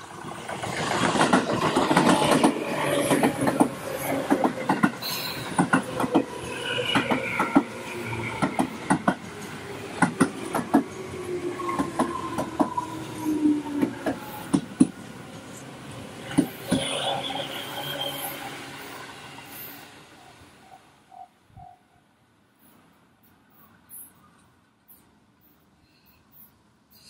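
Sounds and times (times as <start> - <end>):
train wheels clacking on rails: 0.0 - 11.0, 11.6 - 12.9, 13.7 - 15.1, 16.2 - 17.1
electric train whine: 0.0 - 21.8.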